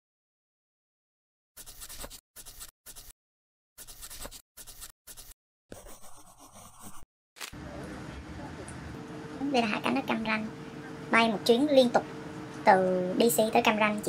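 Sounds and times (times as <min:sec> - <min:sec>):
pen writing on paper: 0:01.6 - 0:03.1, 0:03.8 - 0:07.0.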